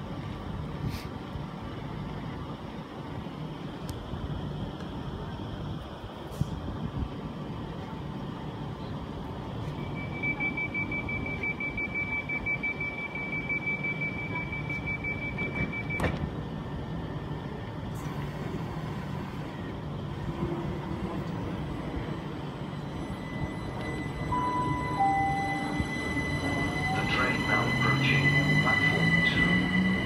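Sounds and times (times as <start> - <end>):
train equipment hum: 0.0 - 30.0
high warning tone: 9.8 - 16.1, 22.8 - 30.0
train doors clunk shut: 14.4 - 16.4.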